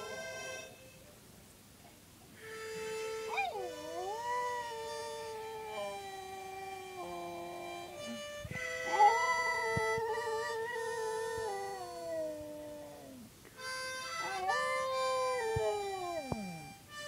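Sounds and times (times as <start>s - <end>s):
harmonica chords: 0.0s - 1.1s, 2.4s - 12.6s, 13.5s - 17.0s
dog howling: 3.3s - 8.0s, 8.8s - 13.3s, 14.1s - 16.6s.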